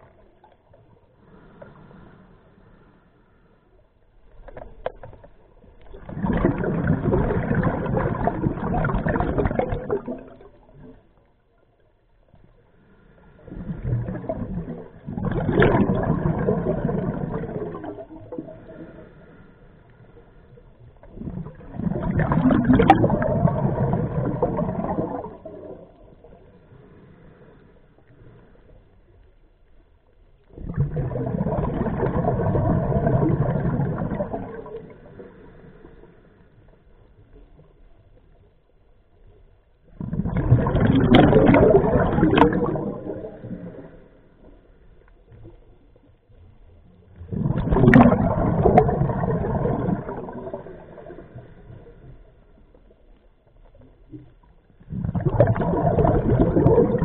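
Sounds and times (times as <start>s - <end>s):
exhaled bubbles gurgling underwater: 0.0s - 3.0s, 3.7s - 57.0s.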